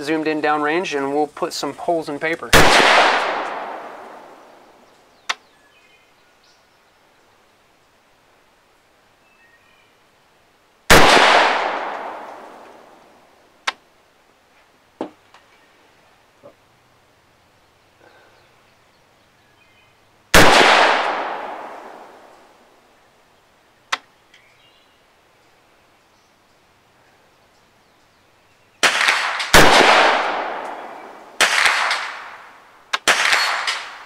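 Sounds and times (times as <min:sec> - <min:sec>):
rifle shots ringing out: 0:02.5 - 0:04.5, 0:10.9 - 0:12.8, 0:20.3 - 0:22.3, 0:28.8 - 0:34.0
faint distant gunshots: 0:02.5 - 0:04.6, 0:10.9 - 0:13.1, 0:20.3 - 0:22.6, 0:28.8 - 0:34.0.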